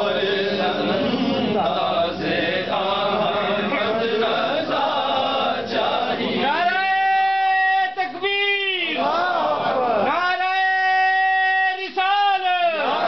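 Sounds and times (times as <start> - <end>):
men chanting together: 0.0 - 6.9, 8.9 - 10.2.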